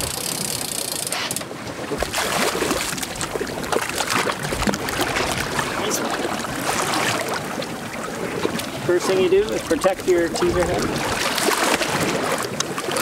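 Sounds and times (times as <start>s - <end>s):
choppy sea wash: 0.0s - 13.0s
fish splashing at surface: 2.0s - 7.6s, 10.6s - 13.0s.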